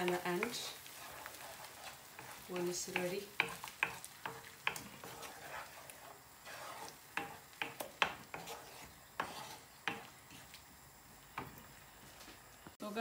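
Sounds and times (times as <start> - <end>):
spatula scraping frying pan: 0.0 - 10.6
soft sizzle of frying: 0.0 - 13.0
spatula knocking against pan: 7.1 - 8.6.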